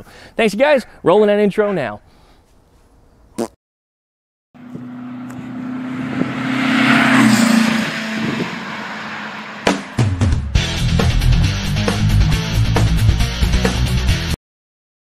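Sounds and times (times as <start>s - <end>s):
passing vehicle engine: 4.6s - 11.3s
rock guitar music: 8.2s - 14.4s.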